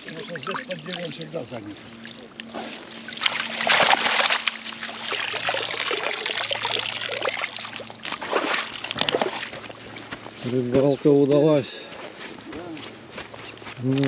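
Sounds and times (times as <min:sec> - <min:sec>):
water splashing and trickling: 0:00.0 - 0:10.2.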